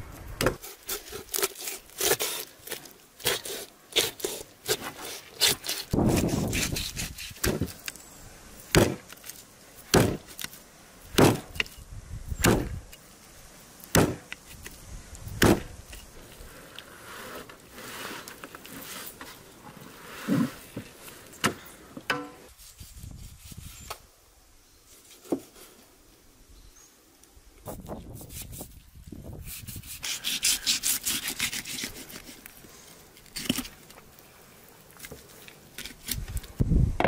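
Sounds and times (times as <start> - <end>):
cleaver chopping onto wooden board: 8.7 - 9.0, 9.9 - 10.3, 11.1 - 11.6, 12.4 - 12.8, 13.9 - 14.3, 15.4 - 15.7.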